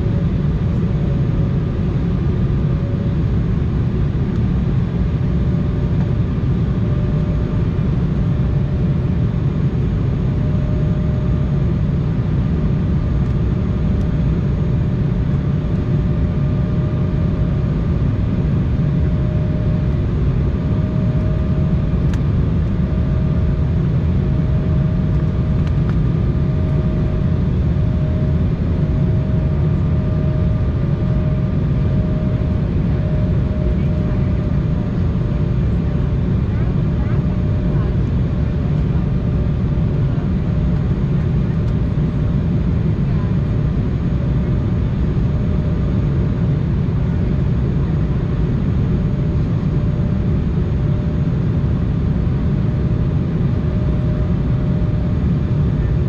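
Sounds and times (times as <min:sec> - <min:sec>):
humming engine tone: 0:00.0 - 0:56.0
jet cabin airflow rumble: 0:00.0 - 0:56.0.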